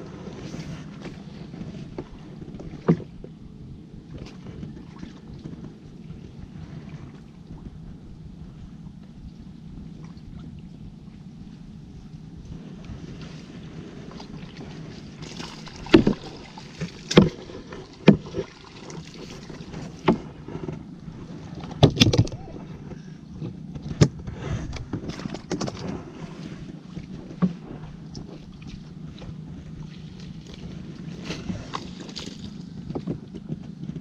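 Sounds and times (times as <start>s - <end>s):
low hum: 0.0s - 34.0s
water sloshing: 12.6s - 33.6s
pole knocking on canoe: 15.8s - 18.5s, 21.6s - 22.4s.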